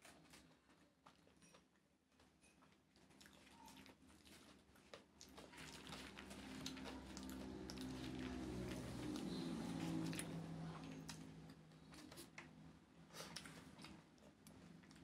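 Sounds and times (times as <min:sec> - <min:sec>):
chewing rice: 0:00.0 - 0:12.5, 0:13.1 - 0:15.0
fingers squishing and mixing rice: 0:00.0 - 0:15.0
low steady hum: 0:05.2 - 0:15.0.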